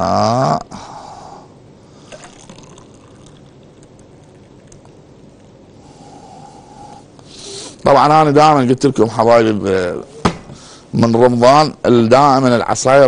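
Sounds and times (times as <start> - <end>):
juice pouring into a glass: 2.0 - 5.8.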